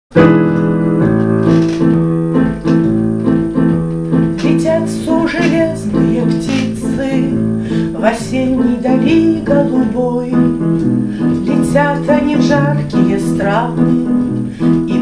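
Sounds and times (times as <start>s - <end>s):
digital piano chords: 0.1s - 15.0s
woman singing: 4.4s - 10.5s, 11.4s - 14.2s.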